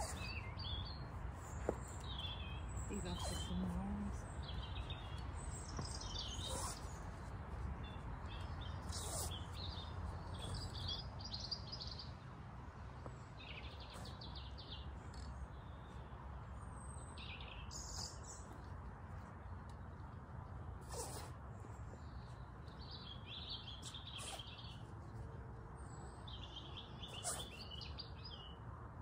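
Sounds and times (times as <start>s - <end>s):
birds chirping and singing: 0.0s - 12.1s, 21.9s - 24.9s, 25.9s - 28.6s.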